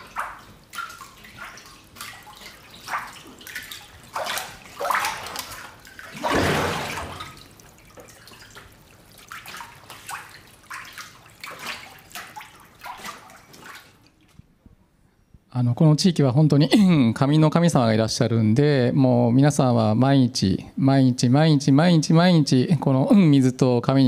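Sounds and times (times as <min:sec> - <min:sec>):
water sloshing and splashing: 0:00.0 - 0:14.7.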